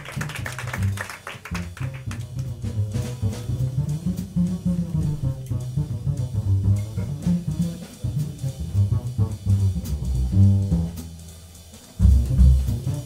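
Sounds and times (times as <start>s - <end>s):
plucked double bass solo: 1.6s - 11.3s, 12.0s - 13.0s
light drum and cymbal strikes: 1.6s - 13.0s.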